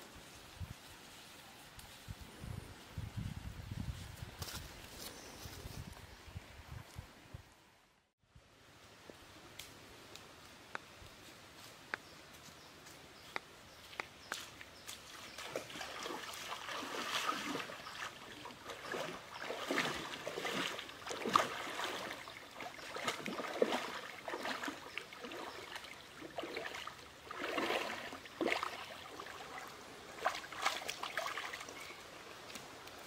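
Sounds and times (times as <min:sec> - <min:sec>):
water sloshing and splashing: 0:15.3 - 0:32.6.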